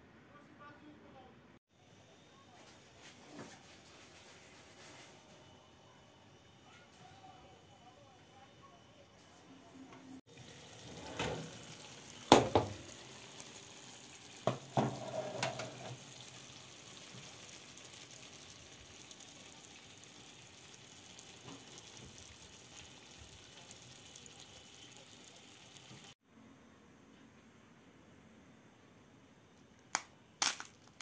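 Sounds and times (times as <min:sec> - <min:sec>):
pastry sizzling in a pan: 0:10.2 - 0:26.2.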